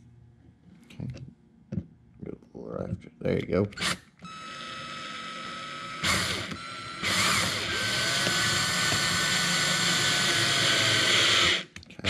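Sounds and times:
cordless drill whining: 3.8 - 11.7.

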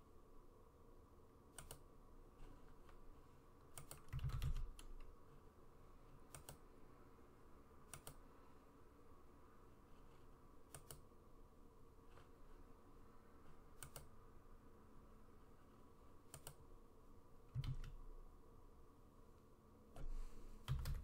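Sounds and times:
mouse and keyboard clicks: 1.5 - 1.8, 3.7 - 5.1, 6.3 - 6.7, 7.9 - 8.2, 10.7 - 11.1, 13.8 - 14.1, 16.3 - 16.6.

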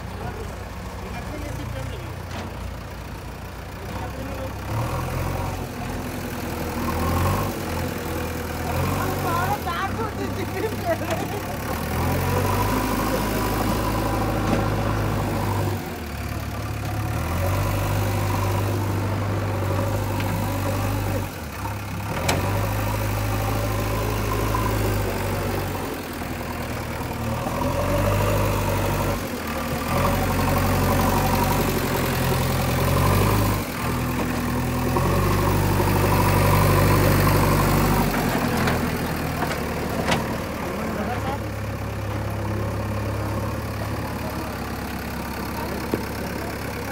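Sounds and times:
diesel engine running: 0.0 - 46.9.

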